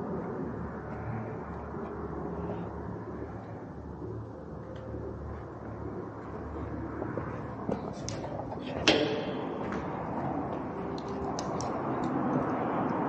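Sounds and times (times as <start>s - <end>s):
scattered clicks and knocks: 6.2s - 13.0s
sharp ringing knock: 8.8s - 9.8s.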